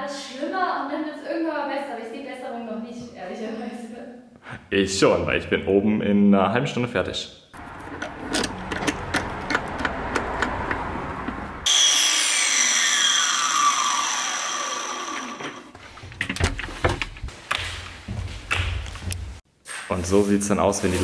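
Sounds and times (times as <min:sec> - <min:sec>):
power saw cutting wood: 0:07.6 - 0:15.8
saw motor whining down: 0:11.6 - 0:15.8.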